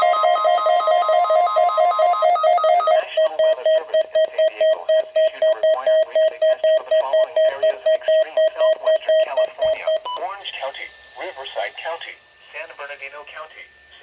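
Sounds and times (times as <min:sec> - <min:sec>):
radio voice broadcast: 0:02.9 - 0:14.0.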